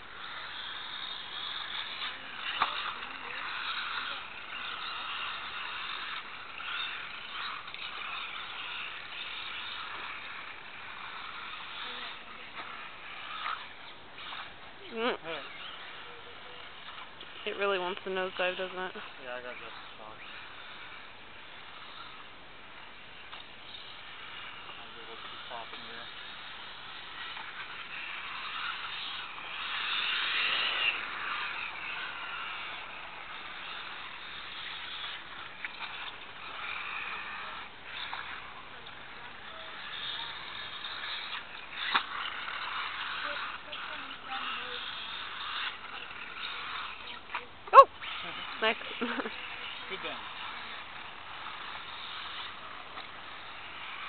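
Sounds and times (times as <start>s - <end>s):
rc car motor whining: 0.0s - 54.0s.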